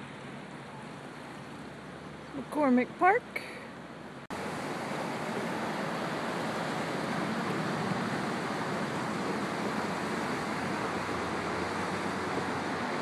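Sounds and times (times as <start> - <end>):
river rushing: 0.0 - 13.0
road traffic on bridge: 0.0 - 13.0.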